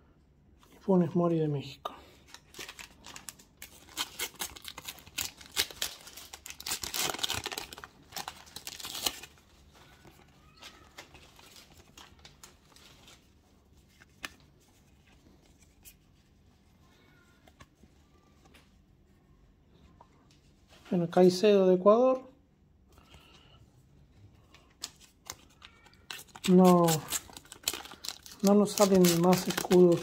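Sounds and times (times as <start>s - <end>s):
sticker packet tearing and crinkling: 2.3s - 13.2s, 24.7s - 30.0s
stickers shuffled by hand: 24.4s - 30.0s.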